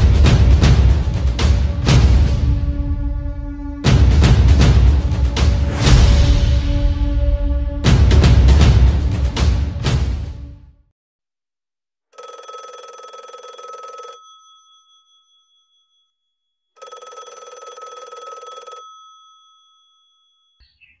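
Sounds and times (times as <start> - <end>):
telephone bell ringing: 12.2 - 16.2, 16.8 - 20.6.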